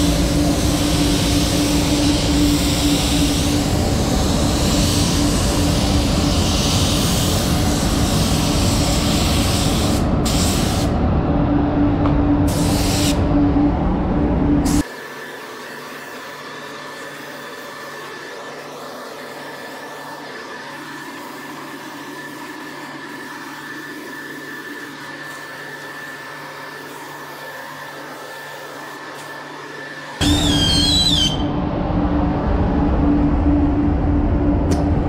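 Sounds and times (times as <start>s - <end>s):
spray gun air rushing: 0.0s - 11.0s, 12.5s - 13.2s, 30.2s - 31.5s
booth ventilation: 0.0s - 14.9s, 30.2s - 35.0s.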